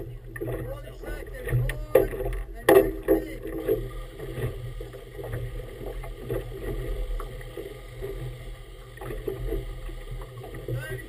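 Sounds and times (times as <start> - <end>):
water slapping against boat hull: 0.0 - 7.4.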